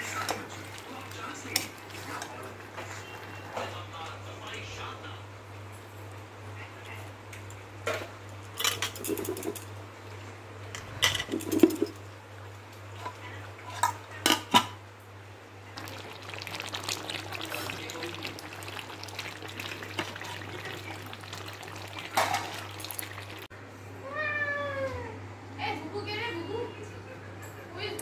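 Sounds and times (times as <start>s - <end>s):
dishes and utensils clinking: 11.0s - 12.0s
running water: 15.7s - 23.5s.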